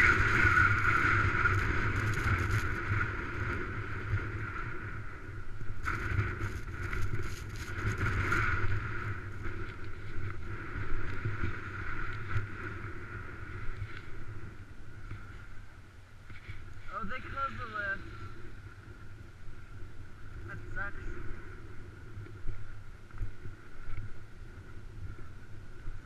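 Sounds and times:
skis scraping over snow: 0.0s - 5.0s, 5.8s - 14.4s
wind rumble on microphone: 0.0s - 26.0s.

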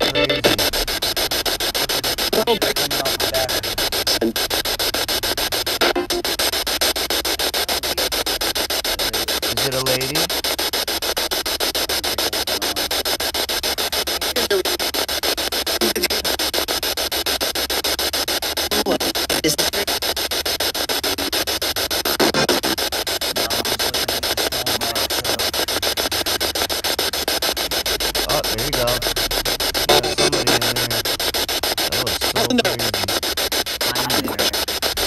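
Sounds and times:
brief radio fragments: 0.0s - 35.0s
pulsing radio static: 0.0s - 35.0s.

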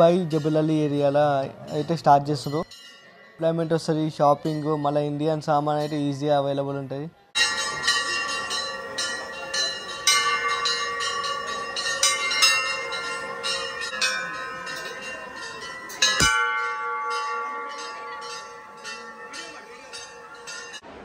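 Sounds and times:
brass bell ringing: 7.4s - 20.8s.

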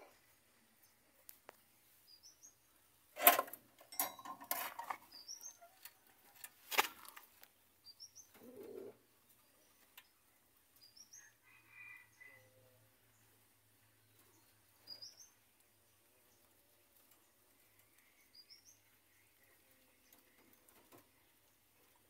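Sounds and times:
small bird chirping: 0.1s - 2.8s, 5.0s - 6.0s, 7.5s - 12.5s, 13.1s - 22.0s
rattling in wire-mesh cage: 3.2s - 7.2s.

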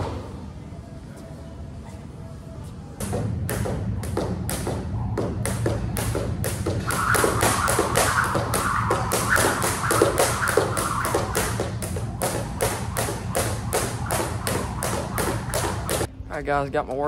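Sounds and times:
jump rope slapping tiled floor: 3.5s - 16.1s.

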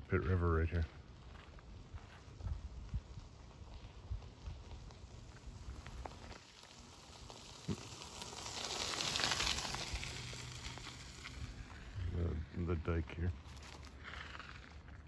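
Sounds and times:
bush leaves rustling: 5.1s - 14.7s.

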